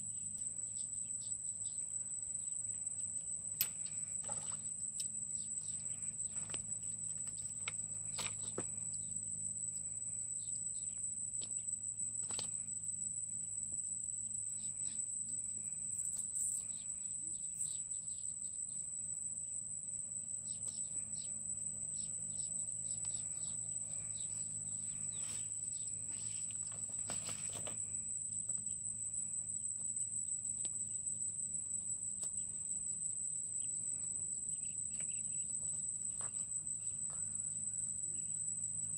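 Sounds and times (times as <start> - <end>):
insect drone: 0.0 - 38.9
low steady hum: 0.0 - 38.9
bird chirps: 16.0 - 18.3, 34.5 - 35.5
rustles: 22.9 - 28.7.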